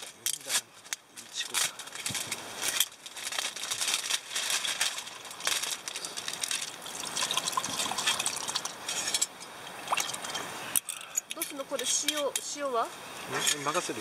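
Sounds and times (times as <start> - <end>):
burning charcoal crackling: 0.0 - 14.0
liquid poured into a cup: 6.7 - 8.8.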